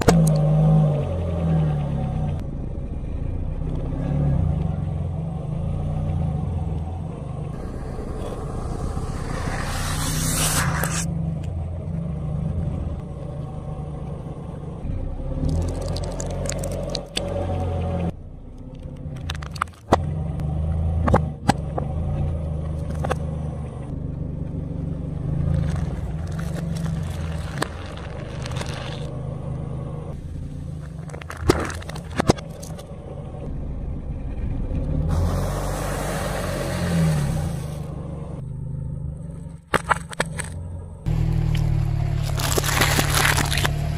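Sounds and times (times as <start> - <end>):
car engine humming: 0.0 - 43.9
tyre crushing objects: 42.2 - 43.8.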